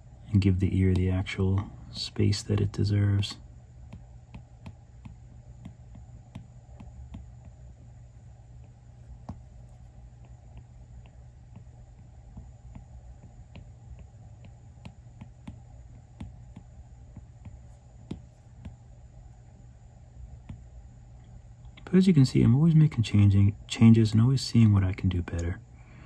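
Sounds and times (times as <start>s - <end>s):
low steady hum: 0.0s - 26.0s
stylus tapping on glass screen: 3.9s - 7.6s, 12.3s - 18.8s.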